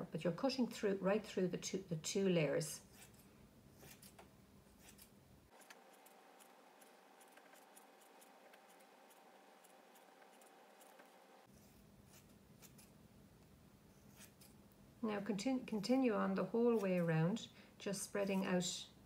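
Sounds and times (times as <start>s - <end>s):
scissors snipping fabric: 3.8s - 4.2s, 12.1s - 13.0s.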